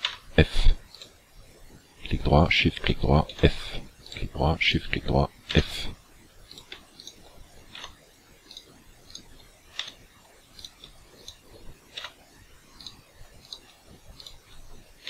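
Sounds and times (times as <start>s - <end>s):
computer mouse clicks: 6.4s - 14.6s.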